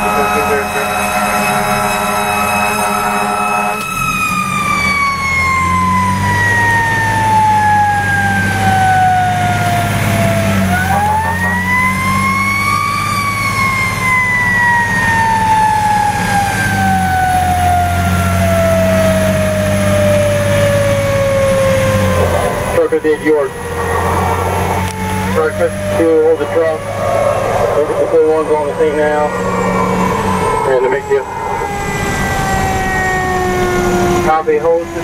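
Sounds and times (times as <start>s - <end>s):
vehicle horn: 0.0s - 4.2s, 10.9s - 11.9s
fire truck engine running: 0.0s - 35.0s
mechanical siren winding down: 0.0s - 35.0s.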